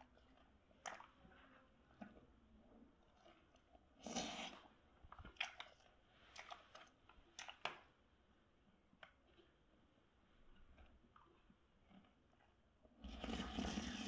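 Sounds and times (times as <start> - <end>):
chewing with sharp clicks: 1.9 - 2.3, 3.0 - 8.0, 8.6 - 12.7
slurping noodle soup: 3.0 - 7.7, 10.7 - 14.0.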